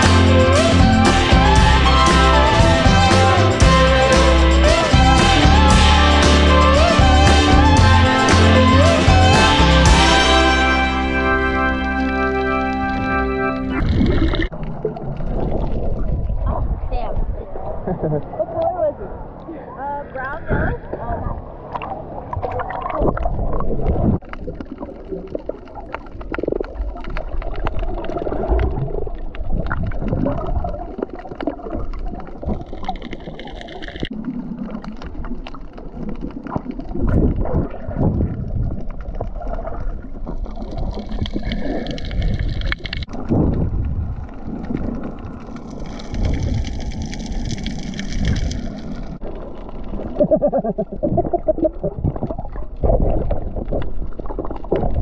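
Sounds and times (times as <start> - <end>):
low underwater rumbles: 0.0 - 19.5, 20.1 - 55.0
underwater water gurgling: 12.7 - 19.5, 20.5 - 55.0.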